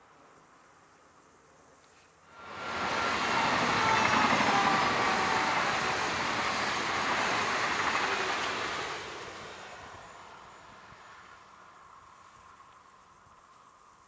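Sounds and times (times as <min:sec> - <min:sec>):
electric train passing on rails: 0:02.3 - 0:13.5.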